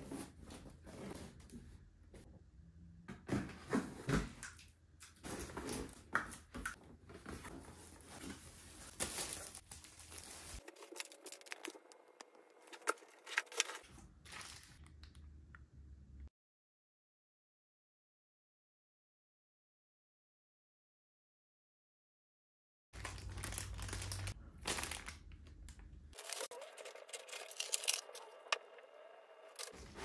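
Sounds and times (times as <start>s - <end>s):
packaging rustling: 7.5s - 14.8s, 23.0s - 28.3s.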